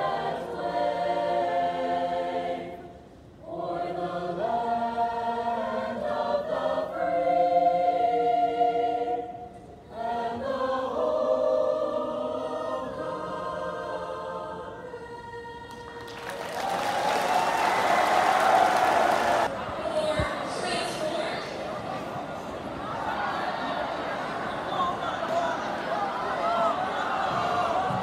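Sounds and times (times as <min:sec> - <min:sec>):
choir singing in parts: 0:00.0 - 0:19.5, 0:21.9 - 0:28.0.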